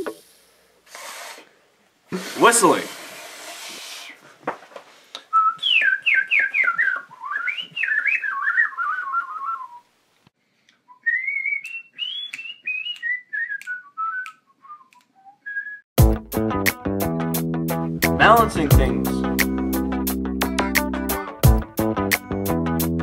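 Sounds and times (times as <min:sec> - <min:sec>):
person whistling a quick tune: 0:05.3 - 0:09.8, 0:10.9 - 0:15.8.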